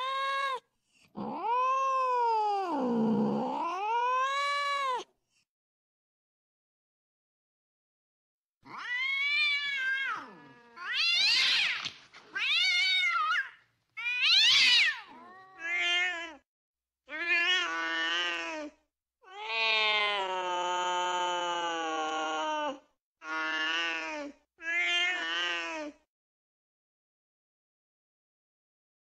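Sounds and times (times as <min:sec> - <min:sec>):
cats yowling: 0:01.2 - 0:05.0, 0:08.7 - 0:16.4.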